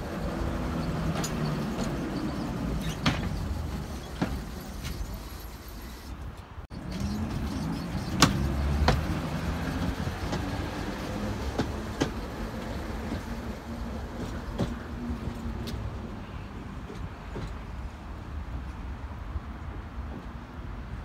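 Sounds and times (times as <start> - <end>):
metallic clicks of wheels on track: 0.0 - 16.0
tram rumbling on rails: 0.0 - 21.0.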